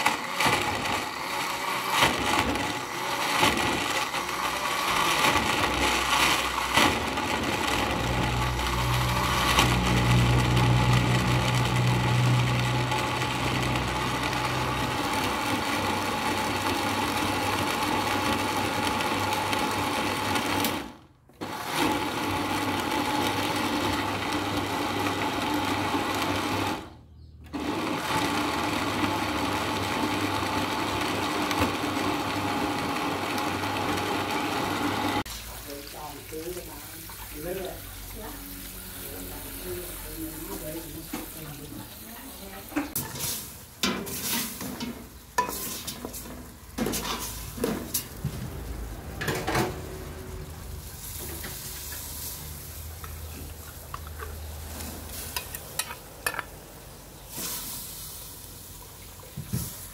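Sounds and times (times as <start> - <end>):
blender running: 0.0 - 43.5.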